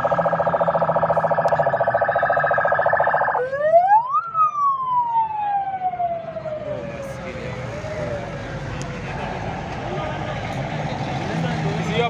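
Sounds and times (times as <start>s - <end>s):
siren pulsing and wailing: 0.0s - 8.8s.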